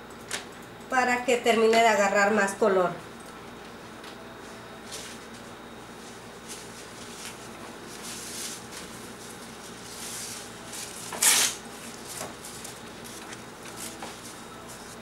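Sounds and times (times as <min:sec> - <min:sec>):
paper rustling: 0:06.0 - 0:15.0
loud paper crinkle: 0:06.4 - 0:15.0.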